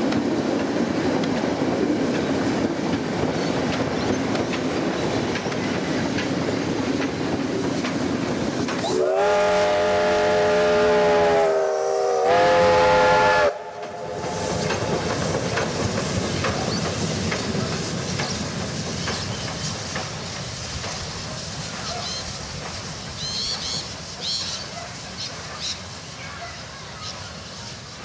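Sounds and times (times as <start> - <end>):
train rumbling over bridge: 0.0 - 28.0
steam locomotive whistle: 8.8 - 14.6.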